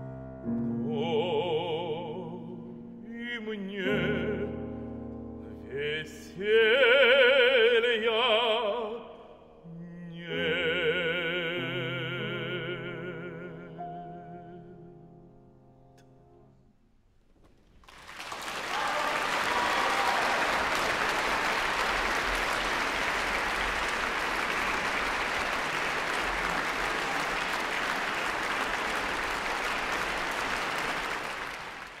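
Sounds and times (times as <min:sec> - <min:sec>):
audience applauding: 0:17.7 - 0:32.0.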